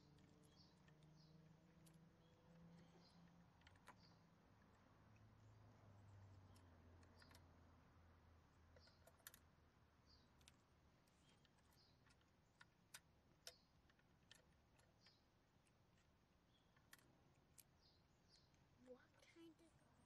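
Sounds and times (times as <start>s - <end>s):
plastic toy parts clicking: 0.0s - 4.8s, 8.7s - 9.5s, 10.2s - 17.8s.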